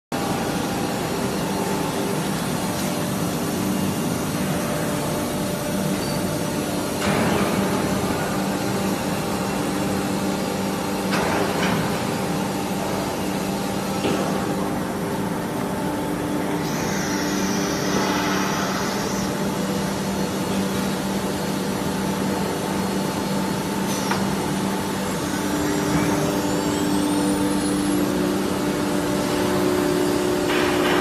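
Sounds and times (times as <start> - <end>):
rough noisy machine sound: 0.1 - 31.0
cnc router mechanical hum: 0.2 - 31.0
spindle whine rising in pitch: 16.4 - 20.7.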